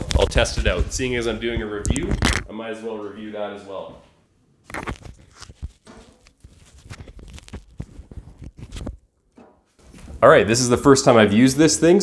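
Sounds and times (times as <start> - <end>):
footsteps: 0.0 - 2.5, 4.8 - 10.5
knocks and rustling: 4.8 - 6.8.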